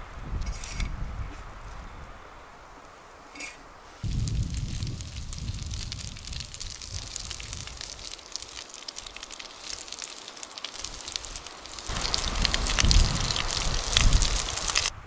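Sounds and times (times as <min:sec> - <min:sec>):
bacon sizzling in frying pan: 0:04.0 - 0:14.9.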